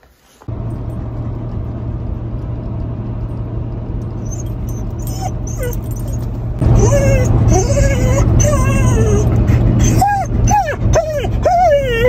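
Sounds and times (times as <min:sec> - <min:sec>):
truck cab hum: 0:00.4 - 0:12.0
dog whimpering: 0:04.2 - 0:12.0.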